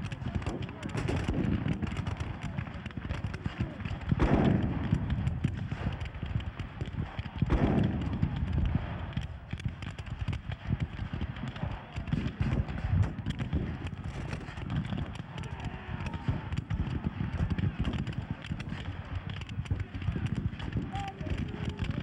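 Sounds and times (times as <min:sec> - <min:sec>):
rifle fire crackling: 0:00.0 - 0:22.0
cannon booms: 0:00.1 - 0:09.9.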